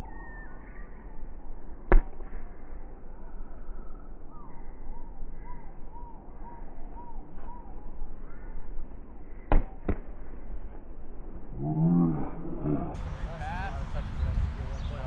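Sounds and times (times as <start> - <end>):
volleyball slaps: 1.9 - 2.4, 9.5 - 10.2
bird calling: 3.7 - 8.7.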